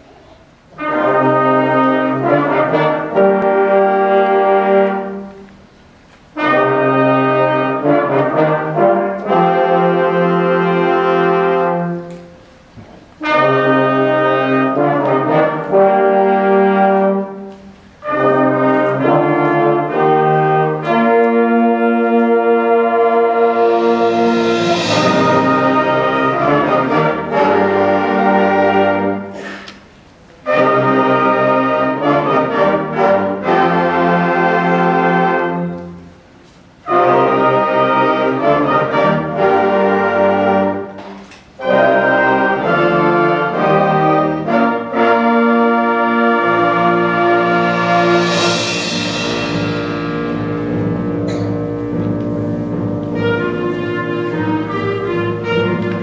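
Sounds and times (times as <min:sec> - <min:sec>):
concert band playing chords: 0:13.2 - 0:29.8, 0:36.8 - 0:56.0.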